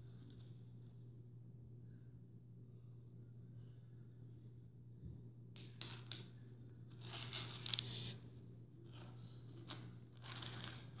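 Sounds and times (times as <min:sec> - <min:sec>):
steady low hum: 0:00.0 - 0:05.6.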